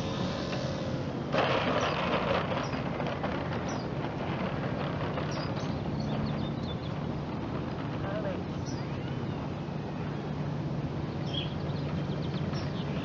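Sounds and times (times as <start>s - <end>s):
sudden rush of noise: 0.0s - 5.1s
steady low rumble: 0.0s - 13.0s
wheels rattling on asphalt: 0.0s - 13.0s.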